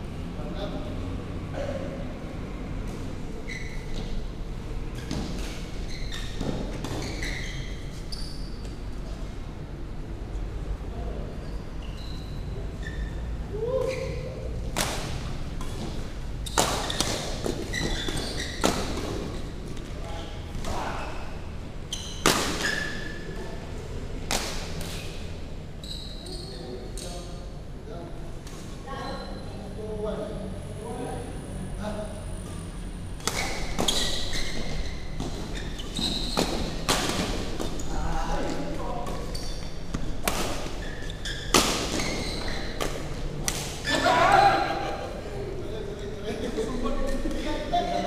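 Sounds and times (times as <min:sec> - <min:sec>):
sneakers squeaking on court: 0:02.9 - 0:04.2, 0:04.9 - 0:08.8, 0:11.4 - 0:13.3, 0:15.1 - 0:23.3, 0:24.8 - 0:27.2, 0:32.5 - 0:44.1
racket smacking shuttlecock: 0:14.7 - 0:19.8, 0:22.1 - 0:23.1, 0:24.2 - 0:25.1, 0:35.2 - 0:37.8, 0:39.9 - 0:40.8.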